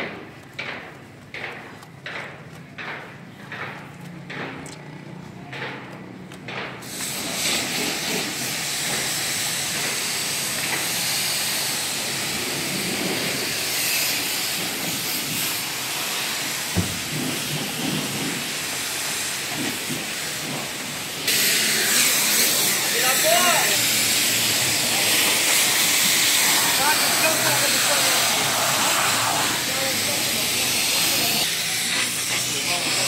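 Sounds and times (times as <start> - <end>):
pressure washer spraying water: 6.8 - 33.0.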